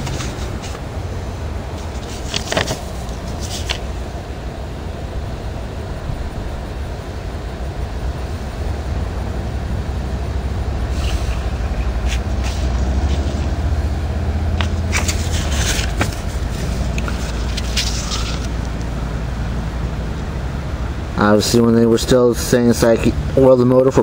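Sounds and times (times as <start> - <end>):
paper leaflet rustling: 0.0 - 0.8, 1.7 - 4.0, 10.9 - 13.6, 14.5 - 18.8.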